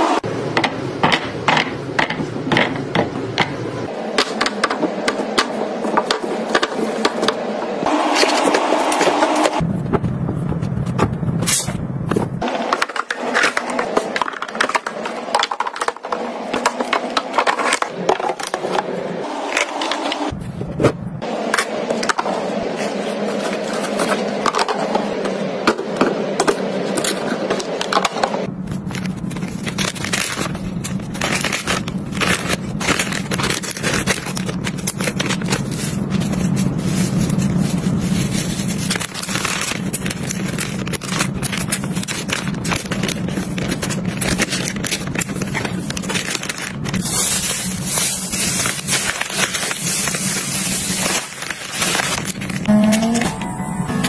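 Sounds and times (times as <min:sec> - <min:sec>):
plastic boxes tapping and scraping: 0:12.1 - 0:18.9
plastic bag crinkling: 0:28.5 - 0:53.2.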